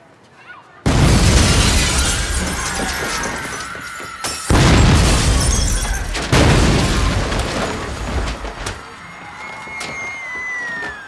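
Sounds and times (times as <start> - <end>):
glass shattering: 0.9 - 8.5
debris falling: 0.9 - 11.0
explosion rumble: 4.5 - 8.6.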